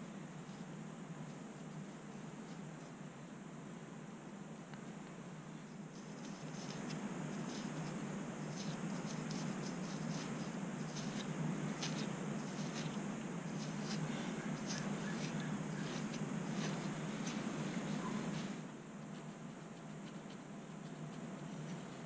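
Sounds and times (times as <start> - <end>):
comb scraping scalp: 6.0 - 18.6.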